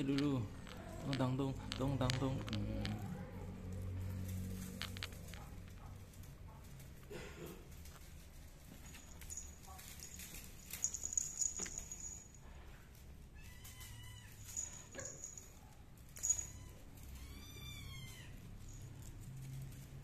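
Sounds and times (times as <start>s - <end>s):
collar bell tinkling: 8.8s - 12.7s, 13.7s - 19.6s
cat meowing: 13.3s - 14.8s, 16.2s - 18.8s.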